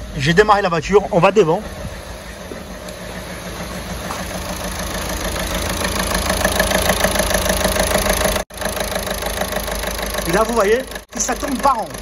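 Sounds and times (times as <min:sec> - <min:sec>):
diesel engine idling with knocking: 0:00.0 - 0:12.0.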